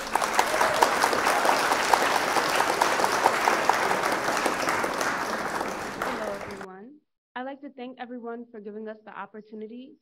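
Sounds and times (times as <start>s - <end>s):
audience applauding: 0.0s - 6.7s
nearby person clapping: 0.0s - 6.7s.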